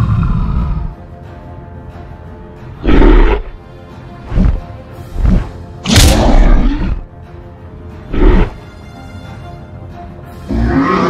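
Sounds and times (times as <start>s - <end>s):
creature roar-like growl: 0.0s - 1.0s, 10.5s - 11.0s
background music: 0.0s - 11.0s.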